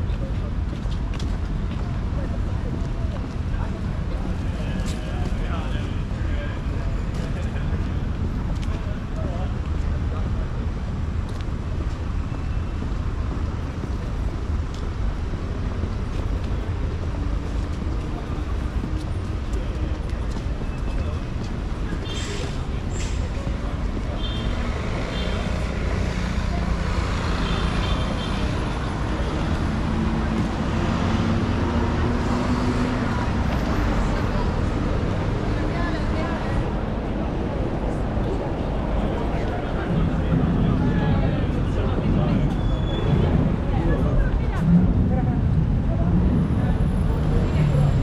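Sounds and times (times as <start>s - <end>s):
city traffic rumble: 0.0s - 48.0s.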